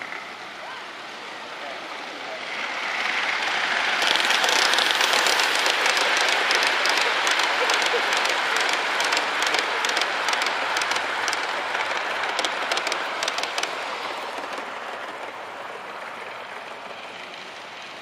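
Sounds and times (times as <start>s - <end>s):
model train wheels rumbling: 0.0s - 18.0s
sharp track clicks: 3.2s - 16.8s.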